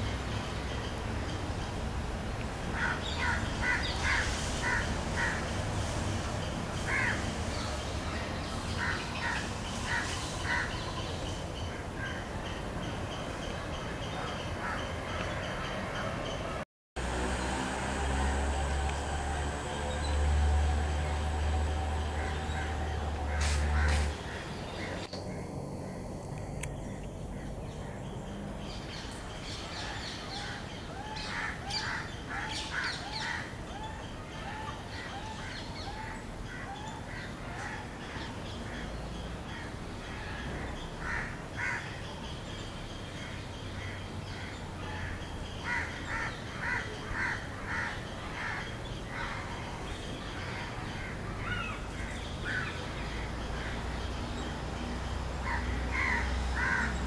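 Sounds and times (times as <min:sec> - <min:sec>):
crows cawing: 0:02.8 - 0:05.4, 0:23.3 - 0:25.0, 0:41.0 - 0:41.9, 0:44.4 - 0:49.5, 0:55.4 - 0:57.0.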